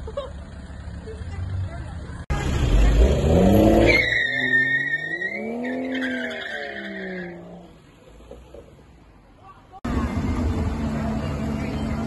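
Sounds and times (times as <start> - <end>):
car engine revving: 2.3 - 7.8
tyres squealing: 3.6 - 7.7.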